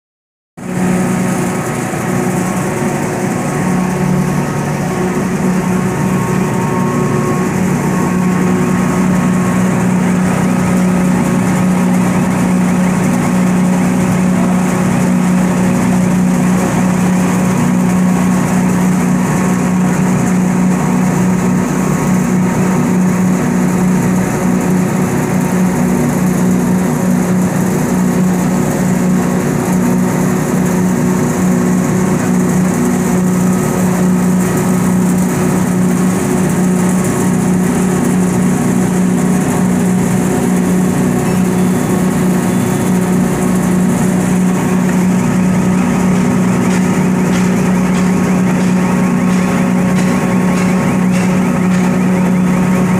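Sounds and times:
grinding mill drone: 0.6s - 52.9s.

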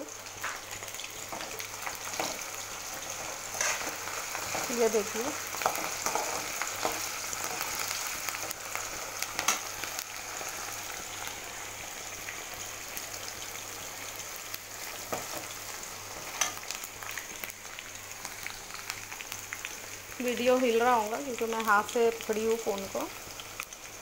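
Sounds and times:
food sizzling in hot oil: 0.0s - 24.0s.

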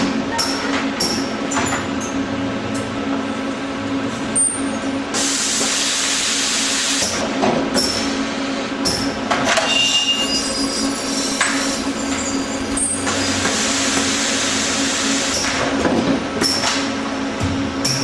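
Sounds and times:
short high squeals: 9.6s - 13.0s
welding machine hum: 10.8s - 18.0s.

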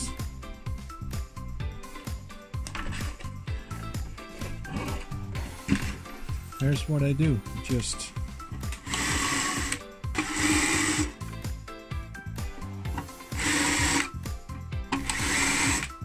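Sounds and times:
background music: 0.0s - 16.0s
electric drill running: 8.6s - 11.2s, 12.9s - 14.2s, 14.9s - 16.0s.

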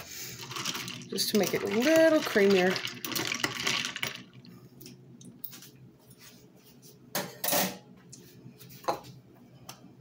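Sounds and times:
liquid sloshing: 0.3s - 4.5s.

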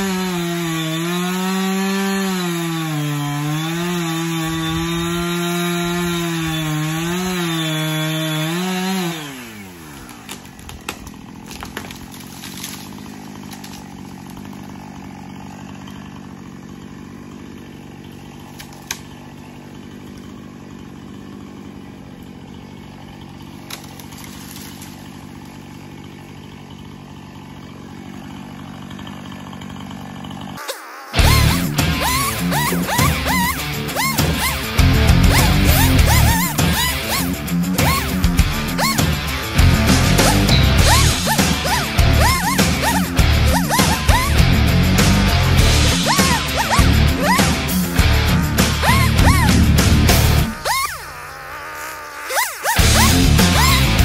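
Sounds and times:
chainsaw cutting wood: 0.0s - 54.0s
music: 31.2s - 50.5s, 52.8s - 54.0s.

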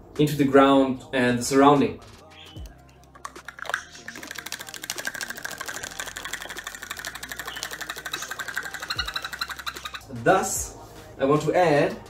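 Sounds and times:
rapid rattling of plastic cup: 3.1s - 10.0s.

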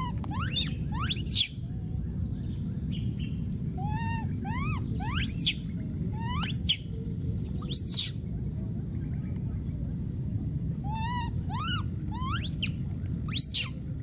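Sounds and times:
baby monkey screeching: 0.0s - 1.6s, 3.8s - 5.6s, 6.2s - 6.9s, 7.6s - 8.2s, 10.9s - 13.8s
steady low rumble: 0.0s - 14.0s.

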